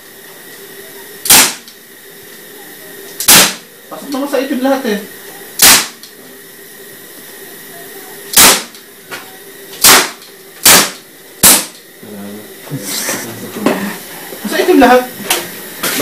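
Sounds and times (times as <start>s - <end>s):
pistol shots: 1.3s - 1.6s, 3.3s - 3.6s, 5.6s - 6.0s, 8.4s - 8.7s, 9.8s - 11.8s.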